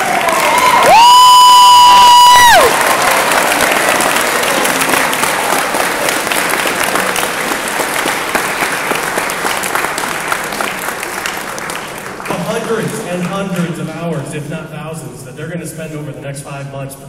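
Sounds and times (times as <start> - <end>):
audience applauding: 0.0 - 13.3.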